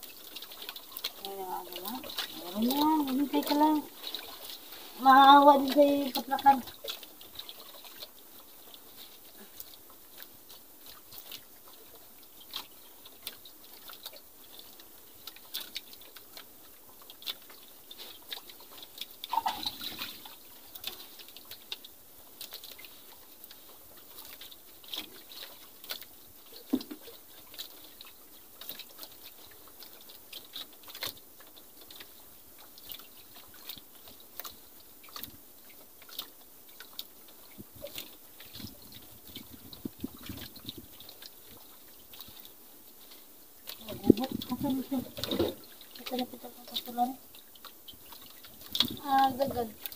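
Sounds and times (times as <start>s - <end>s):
faint ticks and knocks: 0.0s - 49.9s
water lapping: 0.0s - 49.9s
person speaking: 1.2s - 4.0s, 4.9s - 6.7s, 43.8s - 45.2s, 46.0s - 47.2s, 49.0s - 49.8s.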